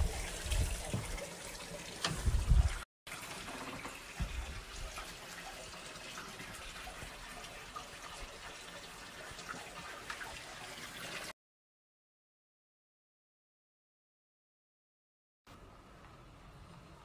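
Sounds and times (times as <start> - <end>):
trickle of running water: 0.0 - 11.4.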